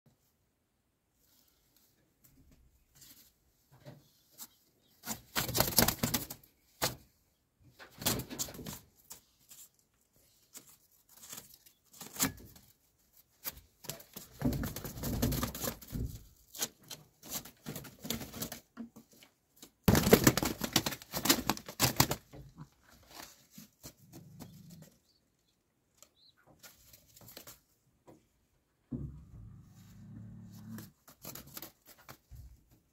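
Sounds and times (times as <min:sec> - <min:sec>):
pigeon wings flapping: 0:05.3 - 0:06.4, 0:19.9 - 0:22.3.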